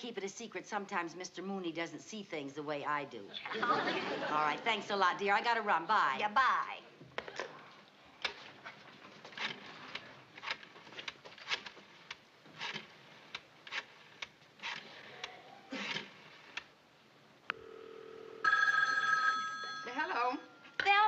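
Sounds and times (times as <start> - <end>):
rotary phone dial whirring: 8.2 - 15.2.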